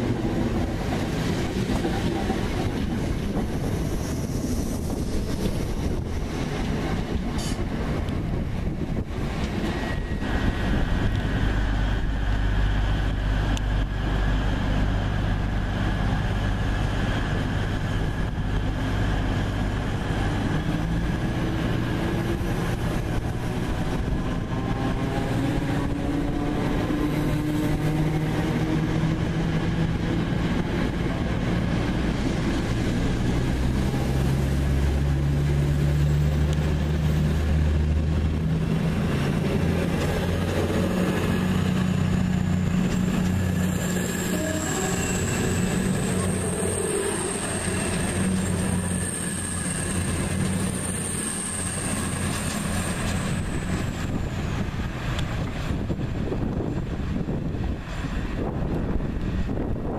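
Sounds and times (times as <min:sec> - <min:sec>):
diesel train engine drone: 0:00.0 - 0:59.9
high wheel squeal: 0:42.0 - 0:54.6.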